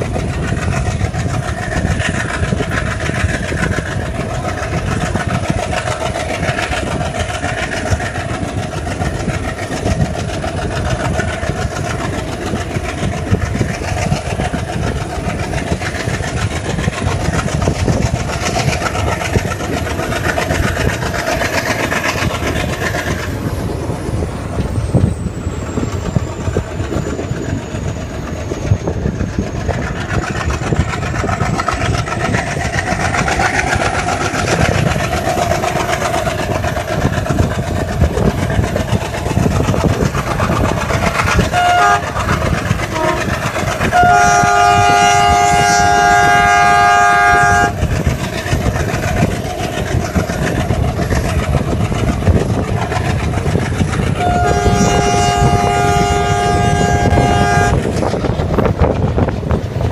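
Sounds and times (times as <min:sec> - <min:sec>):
train wheels rumbling on rails: 0:00.0 - 0:59.9
locomotive horn: 0:41.5 - 0:42.2, 0:42.9 - 0:43.3, 0:43.9 - 0:47.8, 0:54.2 - 0:57.8.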